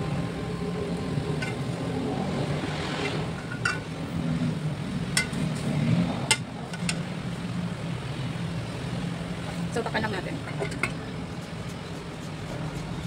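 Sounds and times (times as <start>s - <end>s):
metal spoon clinking on pot: 5.2s - 5.4s.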